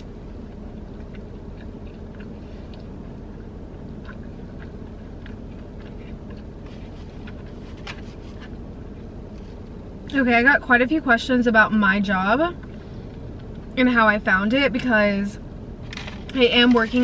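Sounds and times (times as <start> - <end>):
wet chewing: 0.0 - 9.8
low hum: 0.0 - 17.0.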